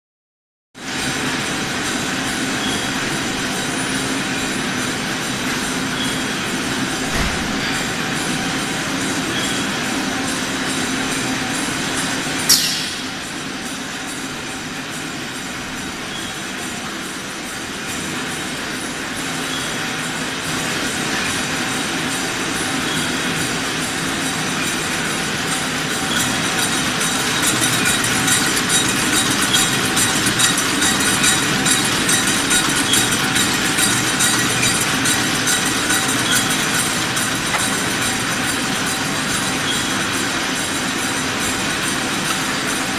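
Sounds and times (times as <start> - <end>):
filling machinery clatter: 0.9 - 42.9
tin cans clattering on conveyor: 26.1 - 38.2.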